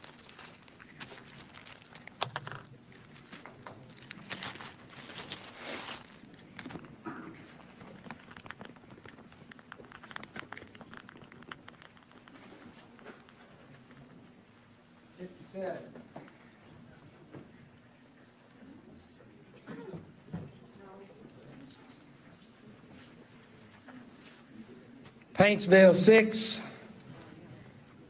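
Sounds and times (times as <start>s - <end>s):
plastic bag crinkling: 0.0s - 13.3s.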